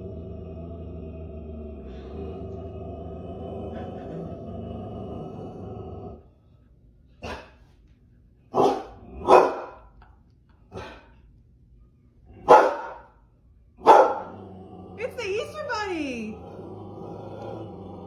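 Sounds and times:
dog barking: 8.5 - 9.8, 12.4 - 13.1, 13.8 - 14.3.

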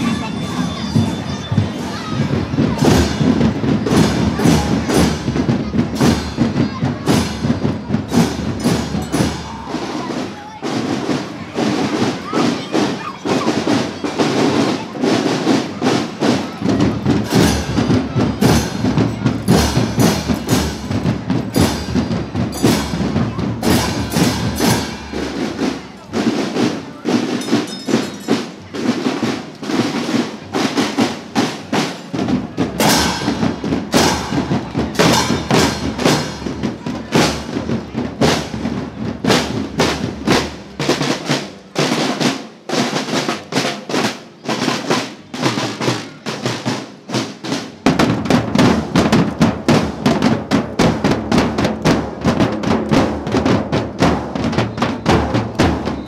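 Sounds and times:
marching drums: 0.0 - 56.0
triangles: 17.3 - 30.2.

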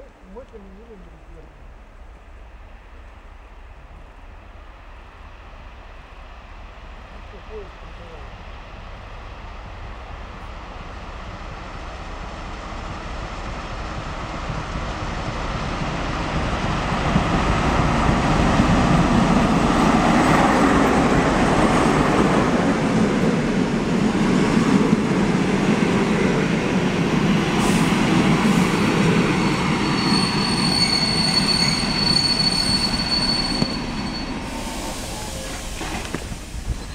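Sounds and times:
diesel locomotive engine: 0.0 - 36.9
train wheels on rails: 7.5 - 36.9
brakes squealing: 29.4 - 36.9.

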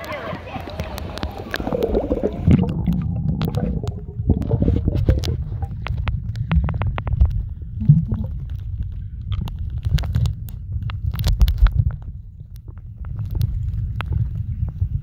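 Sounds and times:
faint clicks and crackles: 0.0 - 15.0
muffled underwater rumble: 0.0 - 15.0
water moving against camera housing: 0.0 - 15.0.

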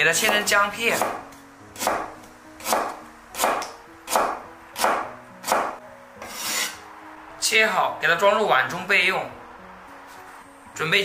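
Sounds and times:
cleaver chopping on wooden board: 0.2 - 6.8.

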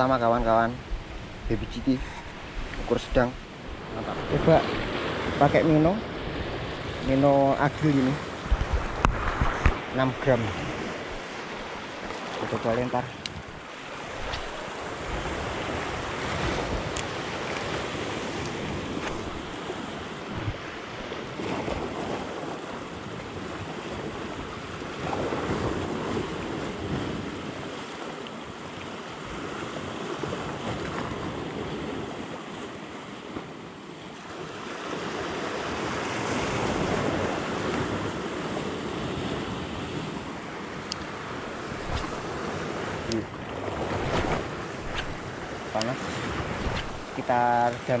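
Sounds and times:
waves breaking over rocks: 0.7 - 48.0
wind noise on microphone: 7.8 - 11.3, 13.2 - 22.6, 40.9 - 47.4.

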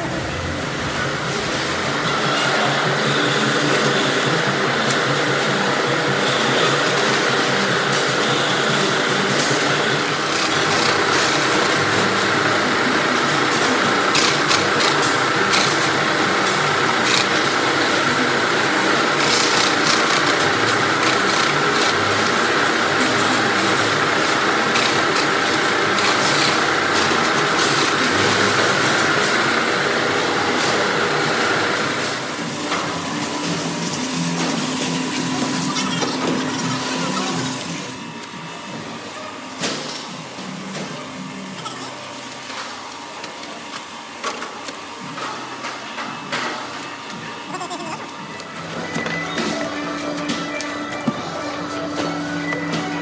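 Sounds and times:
machine hum: 0.0 - 39.5
conveyor machinery whine: 0.0 - 53.0.

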